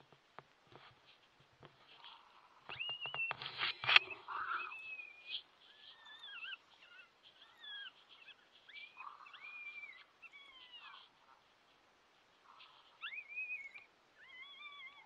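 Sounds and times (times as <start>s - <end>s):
coyote whining calls: 2.0s - 11.4s, 12.4s - 15.0s.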